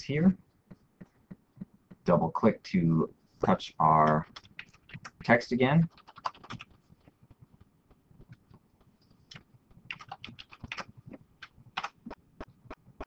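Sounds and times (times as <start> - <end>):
typing on keyboard: 4.0 - 5.2, 5.8 - 7.5, 9.3 - 13.0.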